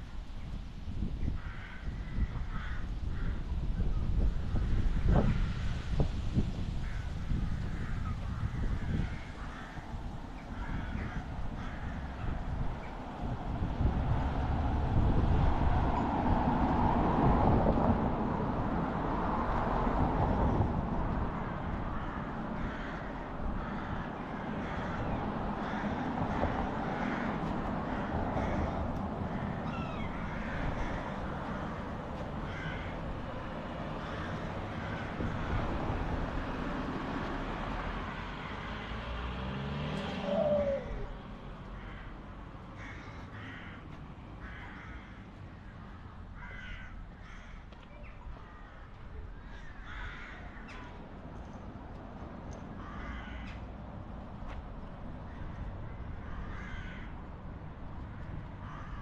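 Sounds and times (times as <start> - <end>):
passing traffic rush: 0.0 - 59.0
street ambience: 0.0 - 59.0
crows calling: 1.3 - 3.6, 6.8 - 13.0, 21.4 - 36.5, 37.9 - 39.0, 40.0 - 51.6, 52.5 - 53.8, 55.2 - 57.3, 58.1 - 59.0.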